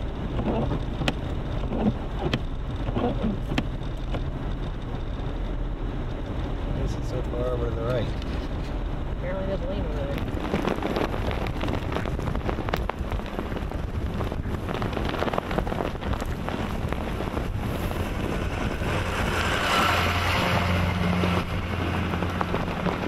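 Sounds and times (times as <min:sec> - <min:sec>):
blowing snow rush and crackle: 0:00.0 - 0:23.0
wind buffeting microphone: 0:00.0 - 0:23.0
truck passing: 0:16.5 - 0:23.0.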